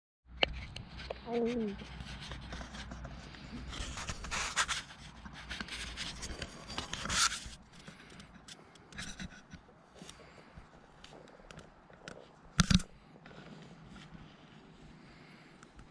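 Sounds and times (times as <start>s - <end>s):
rubbing against microphone: 0.4s - 15.9s.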